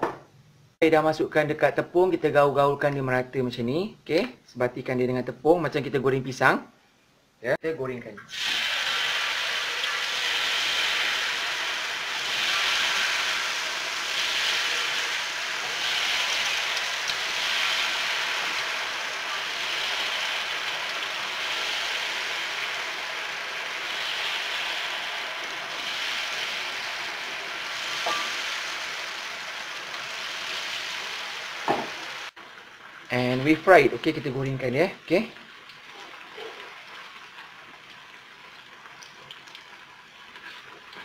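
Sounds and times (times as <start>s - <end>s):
deep-frying sizzle in oil: 8.3s - 41.0s.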